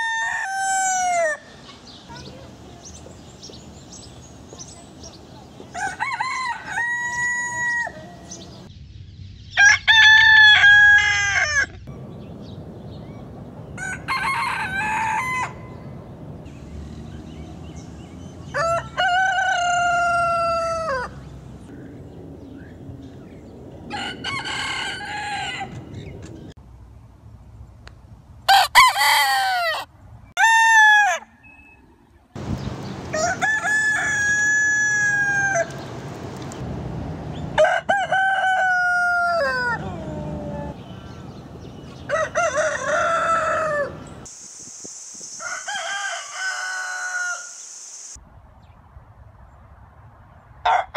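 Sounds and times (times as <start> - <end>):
roosters crowing: 0.0 - 1.6, 5.7 - 8.7, 9.6 - 11.9, 13.6 - 16.0, 17.6 - 21.4, 23.9 - 26.5, 28.5 - 31.5, 32.4 - 36.0, 37.4 - 44.3, 45.4 - 47.7.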